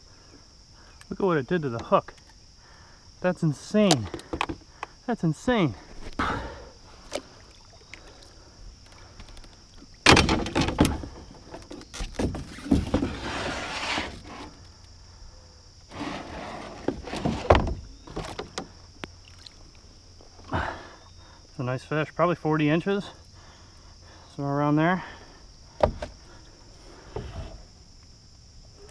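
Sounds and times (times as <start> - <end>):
high insect drone: 0.0 - 28.9
gear knocking against canoe: 3.9 - 4.6, 9.2 - 14.4, 25.7 - 26.2.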